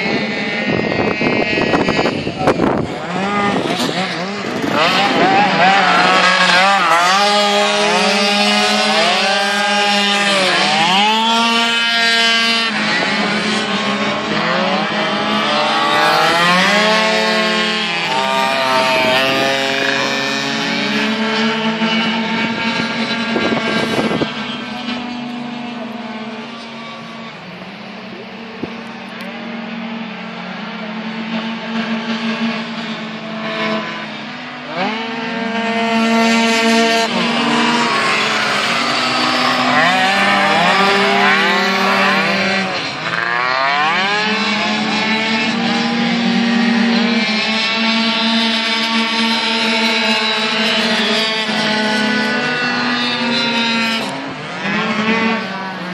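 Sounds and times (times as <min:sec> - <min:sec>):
racing scooter engines whining: 0:00.0 - 0:55.9.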